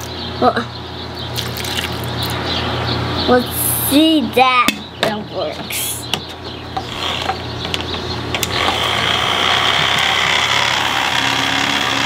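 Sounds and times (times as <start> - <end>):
toy blender motor hum: 6.8 - 7.4, 8.4 - 12.0.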